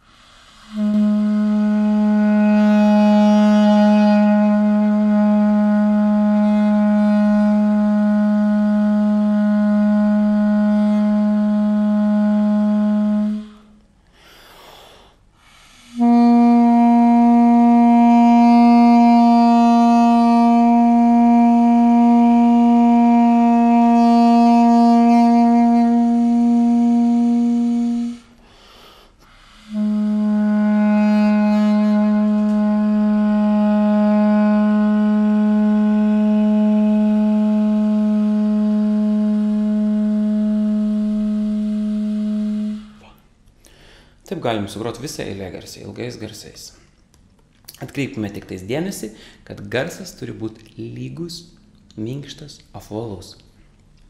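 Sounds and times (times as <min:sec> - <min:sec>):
reed pipe long held notes: 0:00.6 - 0:13.8, 0:15.8 - 0:28.4, 0:29.5 - 0:43.2.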